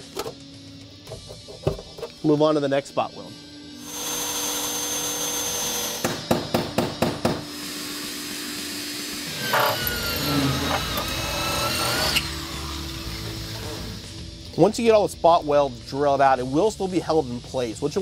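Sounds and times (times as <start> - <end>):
drill boring through metal: 3.8 - 6.2, 7.4 - 14.2
hand-held power tool running: 3.8 - 6.2, 7.4 - 14.1.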